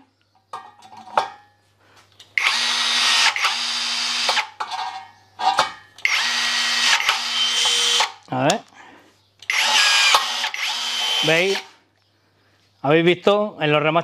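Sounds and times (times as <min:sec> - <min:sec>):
rivet gun motor running: 0:02.4 - 0:04.5, 0:06.0 - 0:08.2, 0:09.5 - 0:11.8.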